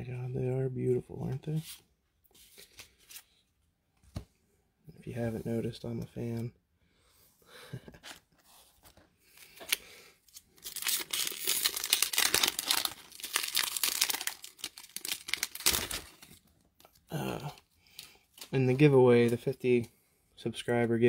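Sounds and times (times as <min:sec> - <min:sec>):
foil wrapper torn and crinkled: 0:09.5 - 0:16.5.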